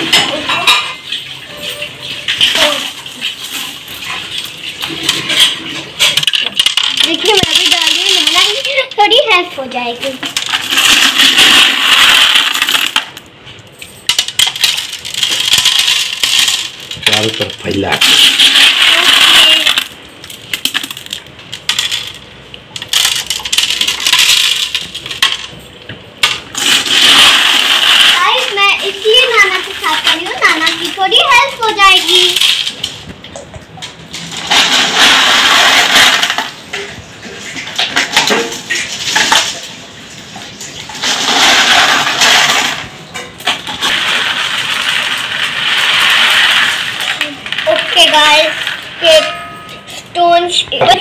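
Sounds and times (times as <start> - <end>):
water pouring and splashing: 0.0 - 13.2, 14.4 - 19.8, 34.2 - 49.6
gravel stones clicking into glass tank: 5.1 - 25.6, 40.8 - 49.2.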